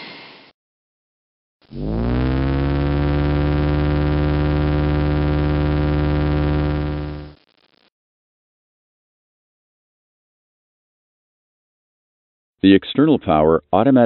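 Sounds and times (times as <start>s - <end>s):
generator spinning up with buzzy hum: 1.6s - 7.8s.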